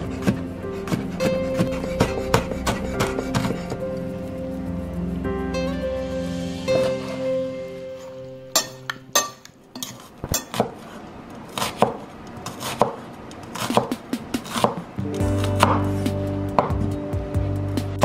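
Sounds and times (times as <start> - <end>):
knife cutting onion on board: 0.0 - 3.8, 9.8 - 16.8
background music: 0.0 - 9.8, 13.6 - 18.0.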